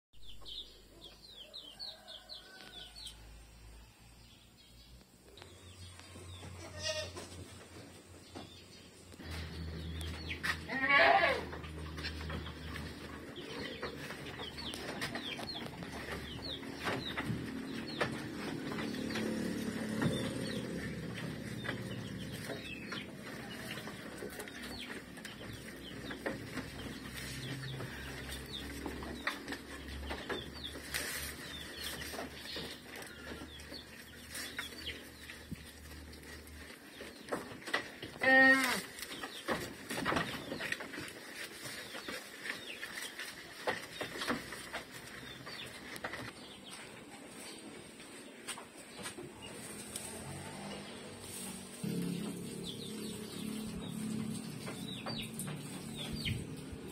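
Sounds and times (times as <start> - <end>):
rustle of leafy forage: 1.9 - 56.9
goats munching: 5.5 - 56.9
goats bleating: 6.6 - 7.3, 10.4 - 11.7.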